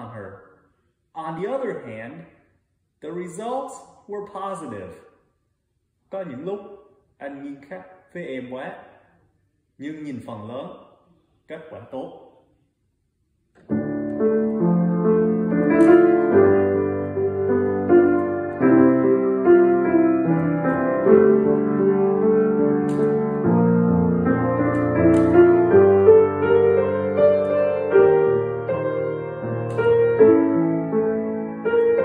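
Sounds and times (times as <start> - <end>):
piano melody over chords: 13.6 - 32.0.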